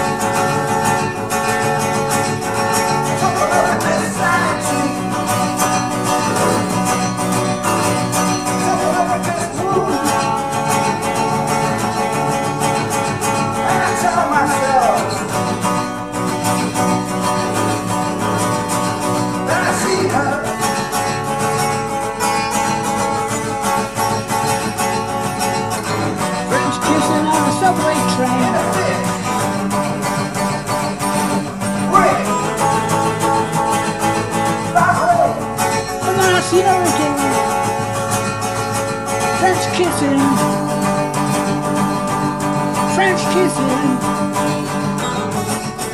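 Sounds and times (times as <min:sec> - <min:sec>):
acoustic guitar chords: 0:00.0 - 0:45.9.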